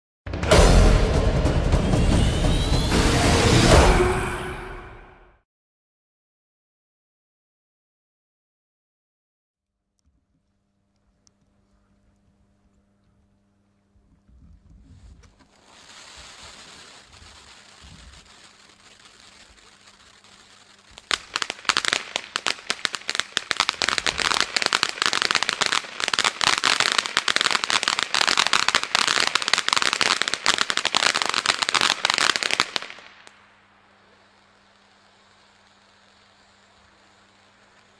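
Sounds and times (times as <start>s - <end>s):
firework crackling: 14.8s - 37.9s
firework fountain spray hiss: 14.8s - 37.9s.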